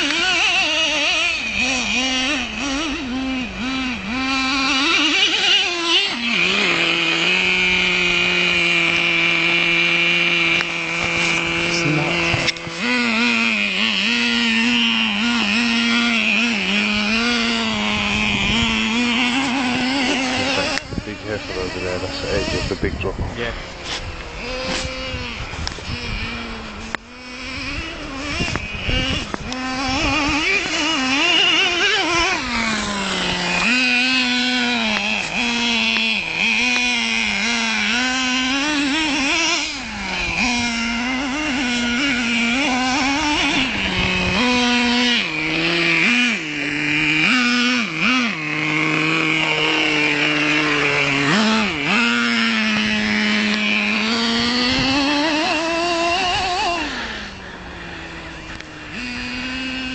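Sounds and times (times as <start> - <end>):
high-pitched nitro engine revving: 0.0 - 59.9.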